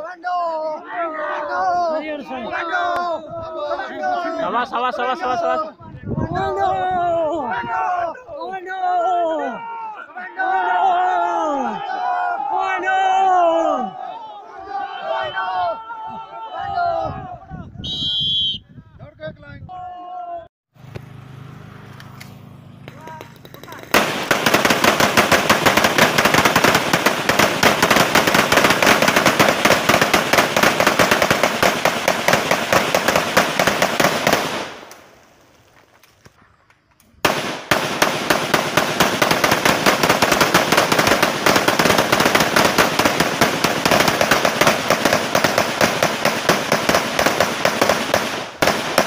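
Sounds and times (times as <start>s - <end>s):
rapid crackle of bangs: 22.9s - 35.0s, 37.2s - 49.0s.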